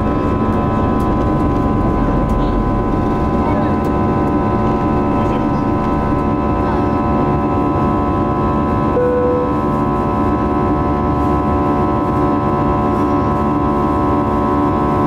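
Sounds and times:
jet engines in cabin: 0.0 - 15.0
short tone: 8.9 - 9.8.

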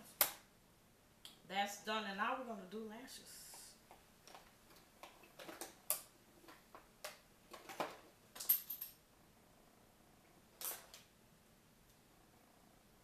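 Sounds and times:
makeup items clicking and tapping: 3.9 - 8.0.

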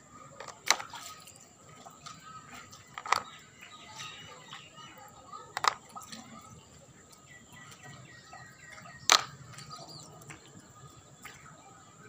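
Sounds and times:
faint bird chirping: 0.0 - 12.0
plastic toy figures clacking: 2.9 - 3.4, 5.5 - 6.0, 9.1 - 9.3.

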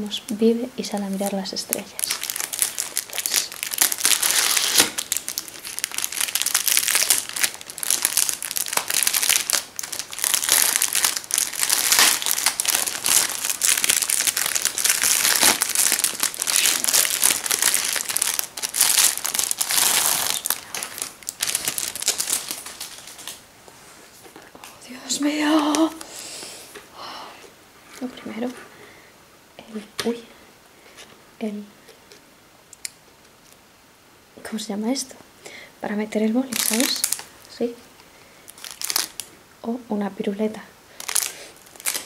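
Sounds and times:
plastic wrapping crinkling: 0.3 - 26.1, 36.5 - 39.4, 40.9 - 42.0.

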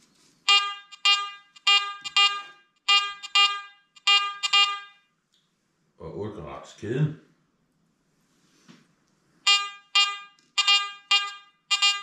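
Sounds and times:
metal detector beeps: 0.5 - 5.0, 9.5 - 12.0.

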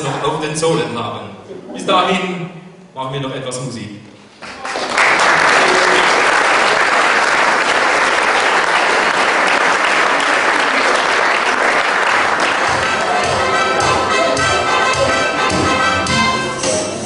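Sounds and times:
audience applauding: 4.4 - 15.1.

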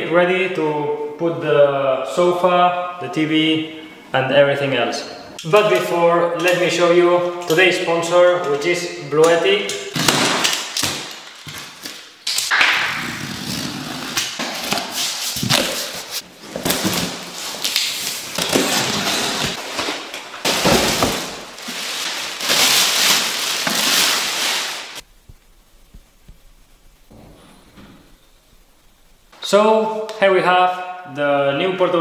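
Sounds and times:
knife slitting packing tape: 13.1 - 19.6.

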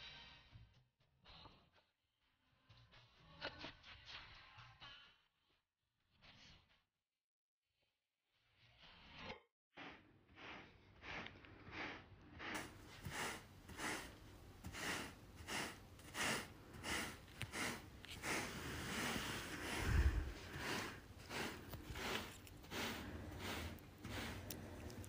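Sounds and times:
rubber broom scraping carpet: 9.8 - 25.0.

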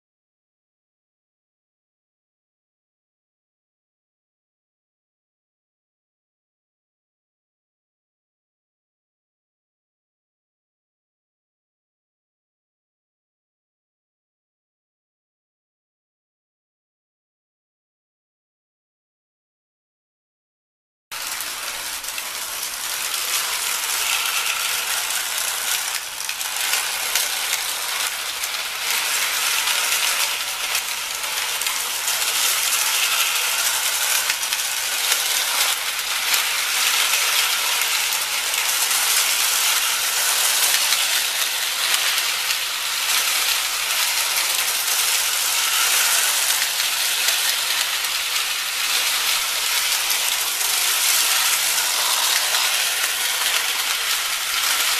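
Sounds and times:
toy locomotive motor gearing: 21.2 - 54.9
toy train wheels rattling on rails: 21.2 - 54.9.

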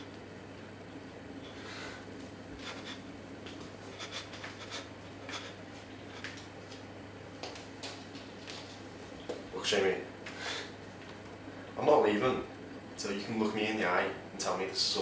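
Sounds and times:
scuffs and rustles of people moving: 2.1 - 9.6.

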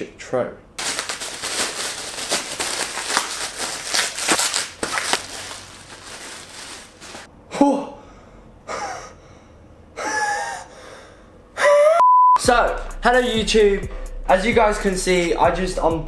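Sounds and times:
bubble wrap crinkling: 0.8 - 7.3.

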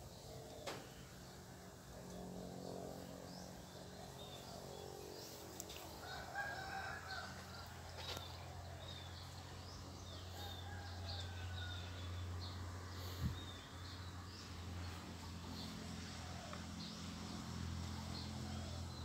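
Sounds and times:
low steady hum: 0.0 - 19.0
rooster crowing: 5.9 - 8.7, 10.1 - 12.3.

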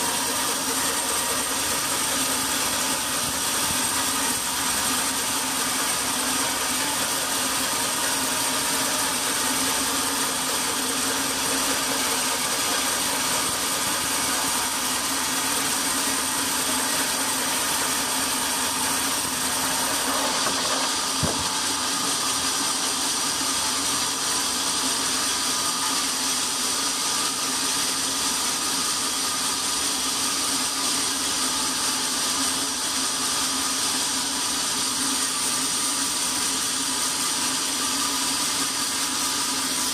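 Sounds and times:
band saw cutting log: 0.0 - 39.9
single knock: 21.2 - 21.6.

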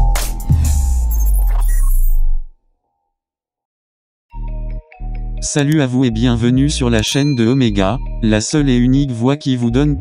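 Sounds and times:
electronic music with heavy bass: 0.0 - 2.5.

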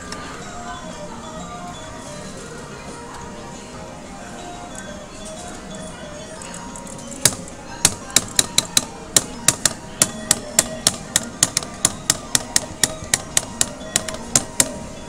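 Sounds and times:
crane game music: 0.0 - 15.0
fast sharp knocks: 7.2 - 14.8.

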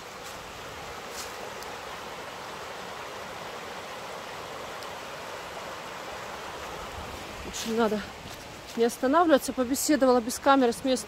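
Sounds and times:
river rushing over stones: 0.0 - 11.0.

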